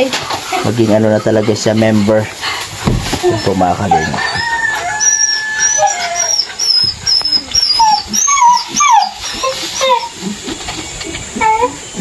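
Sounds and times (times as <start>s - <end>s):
dog whimpering: 3.1s - 12.0s.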